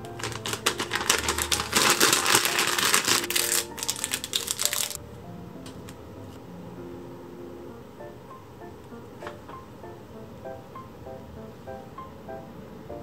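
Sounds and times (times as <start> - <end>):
plastic packet crinkling: 0.0 - 5.0
background music: 0.0 - 13.0.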